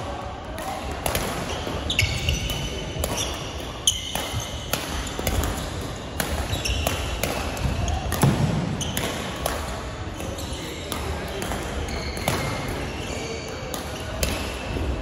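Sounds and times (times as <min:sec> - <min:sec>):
racket hitting shuttlecock: 0:00.6 - 0:10.3, 0:13.7 - 0:14.6
shoes squeaking on wooden floor: 0:01.5 - 0:02.5, 0:06.5 - 0:06.9.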